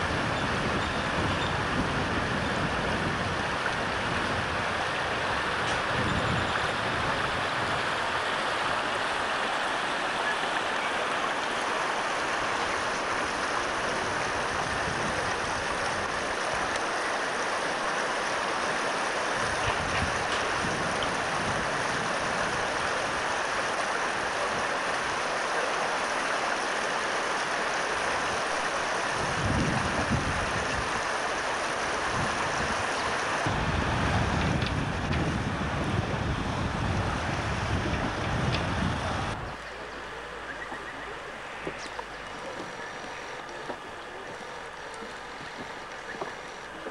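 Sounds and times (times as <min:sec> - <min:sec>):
wind buffeting microphone: 0:00.0 - 0:09.1, 0:12.7 - 0:16.8, 0:19.4 - 0:23.4, 0:29.2 - 0:31.1, 0:31.7 - 0:46.9
water rushing in stream: 0:00.0 - 0:46.9.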